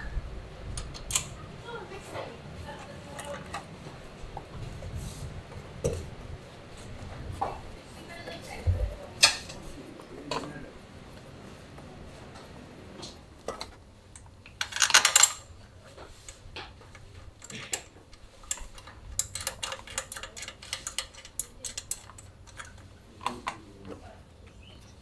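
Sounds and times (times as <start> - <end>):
metal tools clinking: 2.8 - 3.6, 14.6 - 15.5, 17.4 - 22.8.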